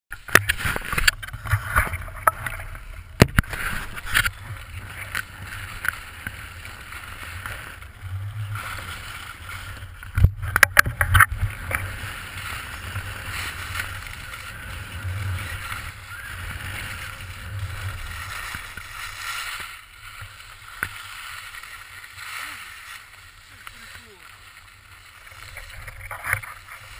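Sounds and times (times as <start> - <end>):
skis scraping over snow: 0.1 - 26.9
wind rumbling on microphone: 0.1 - 26.9.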